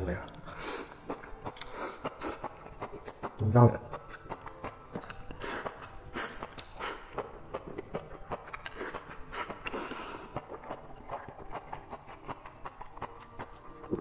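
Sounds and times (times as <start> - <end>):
wet chewing and lip smacks: 6.4 - 14.0.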